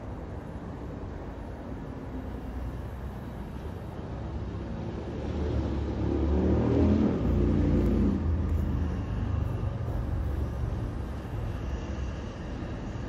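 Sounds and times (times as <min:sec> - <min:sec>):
vehicle passing over bridge: 0:04.3 - 0:13.0.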